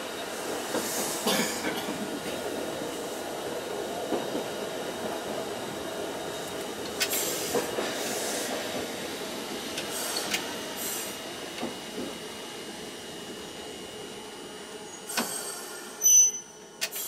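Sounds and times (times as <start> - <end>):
tram wheels and motors running: 0.0 - 17.0
high-pitched hisses or squeals: 14.9 - 17.0.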